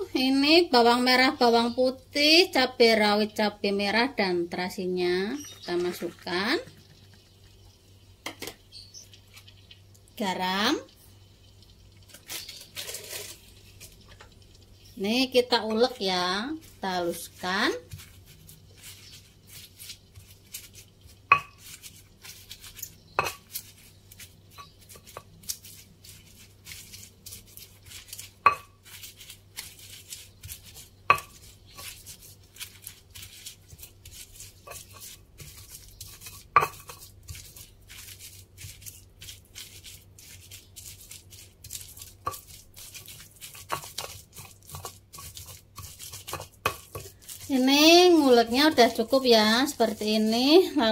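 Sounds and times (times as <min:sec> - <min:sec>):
stone pestle crushing and scraping: 0:12.1 - 0:14.3, 0:16.6 - 0:50.9.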